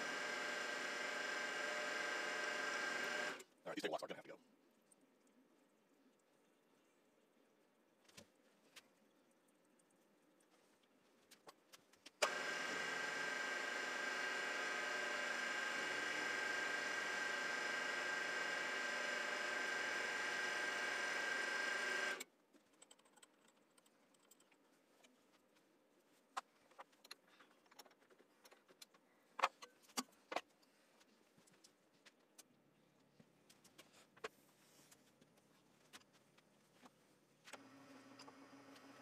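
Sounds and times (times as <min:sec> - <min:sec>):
mill drill motor whine: 0:00.0 - 0:03.4, 0:12.2 - 0:22.2, 0:37.6 - 0:39.0.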